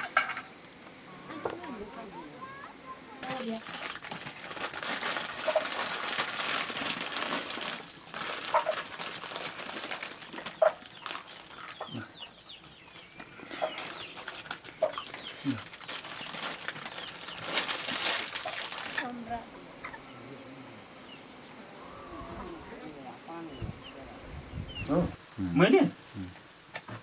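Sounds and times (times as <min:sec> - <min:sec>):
chickens clucking: 0:08.4 - 0:08.9, 0:10.3 - 0:17.5, 0:18.3 - 0:22.8.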